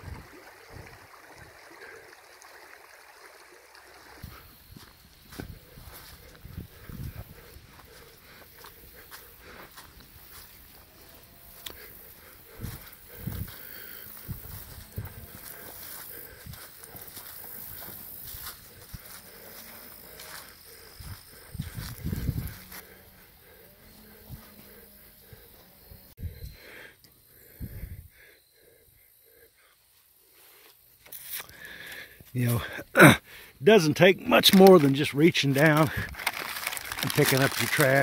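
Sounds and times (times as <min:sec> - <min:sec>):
faint creek flowing: 0:00.0 - 0:26.2, 0:28.1 - 0:38.0
footsteps through dry grass: 0:04.2 - 0:24.7, 0:34.2 - 0:38.0.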